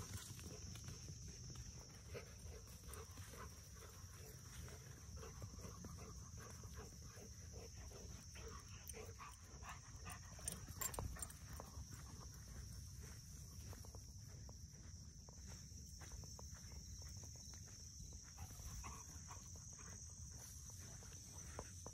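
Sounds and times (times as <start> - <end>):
dog panting softly: 2.0 - 12.2.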